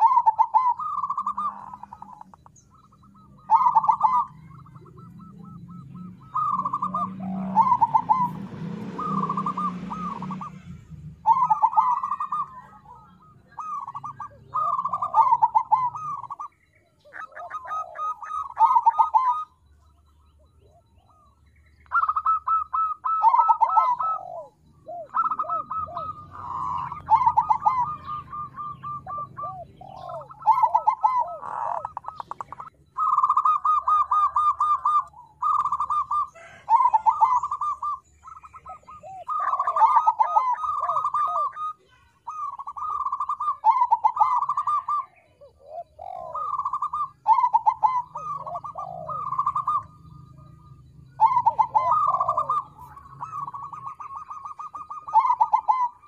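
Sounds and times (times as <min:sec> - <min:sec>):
dove cooing in trilled coos: 0:00.0 - 0:56.0.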